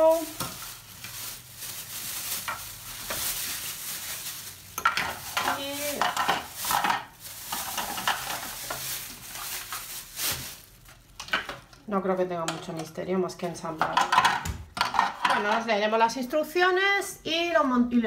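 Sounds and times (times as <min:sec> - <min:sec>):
plastic bags crinkling: 0:00.0 - 0:14.4.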